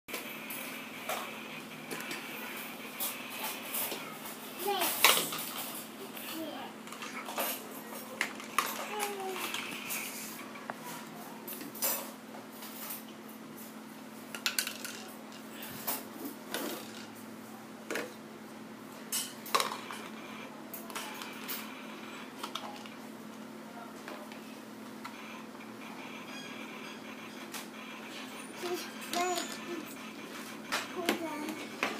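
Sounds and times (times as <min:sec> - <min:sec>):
plastic toy pots clattering: 0:14.3 - 0:15.1.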